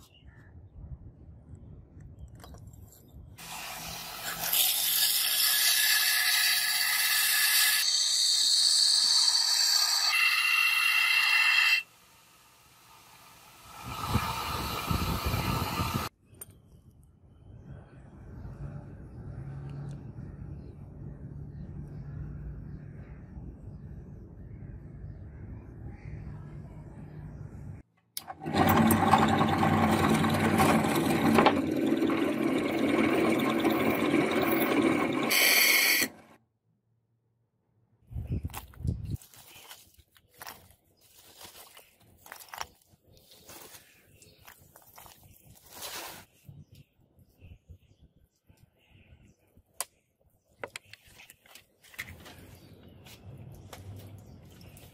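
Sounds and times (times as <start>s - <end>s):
belt grinder grinding steel: 3.4s - 11.9s, 12.9s - 16.1s, 28.2s - 36.4s.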